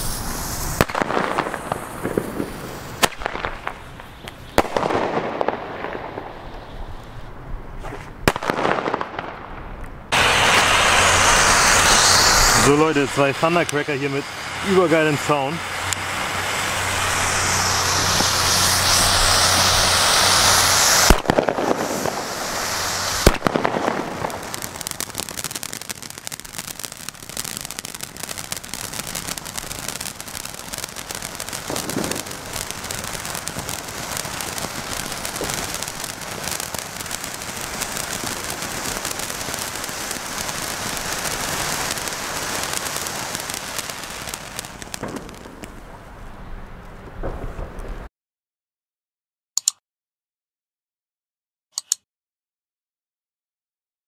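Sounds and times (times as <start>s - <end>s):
firework fountain hissing spray: 0.0s - 7.2s, 10.1s - 46.0s
firework bangs: 0.0s - 46.1s, 47.1s - 48.1s
firework crackling: 0.0s - 48.1s.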